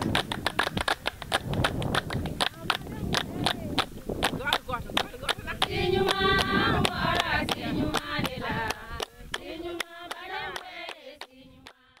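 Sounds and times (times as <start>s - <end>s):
rhythmic clapping: 0.0s - 12.0s
women singing together: 5.4s - 12.0s.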